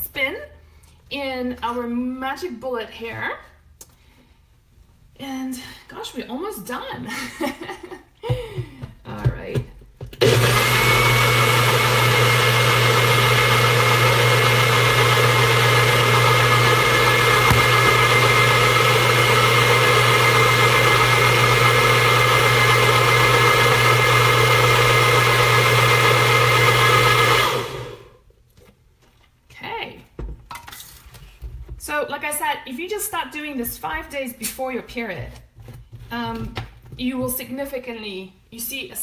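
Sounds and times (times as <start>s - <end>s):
blender running: 10.2s - 28.2s.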